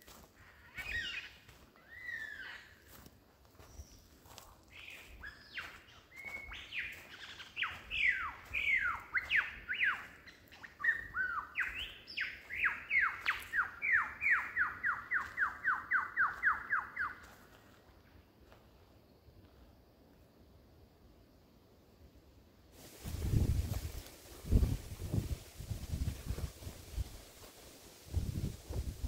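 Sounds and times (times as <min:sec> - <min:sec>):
lyrebird singing whistles: 0:00.8 - 0:02.7, 0:04.7 - 0:17.3.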